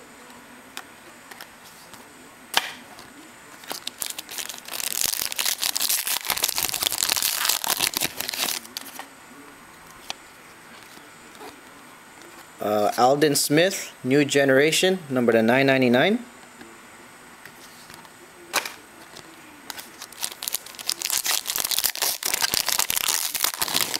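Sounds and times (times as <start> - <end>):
foil wrapper tearing and crinkling: 3.6 - 9.0, 19.7 - 23.9.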